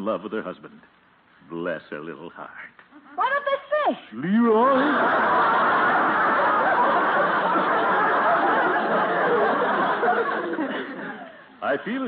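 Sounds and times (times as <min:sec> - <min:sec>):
audience laughing: 0:04.6 - 0:11.5.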